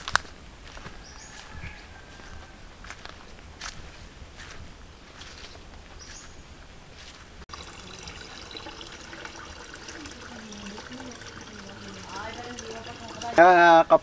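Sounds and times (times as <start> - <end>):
footsteps through grass: 0.0 - 7.4
water trickling in plastic basin: 7.5 - 14.0.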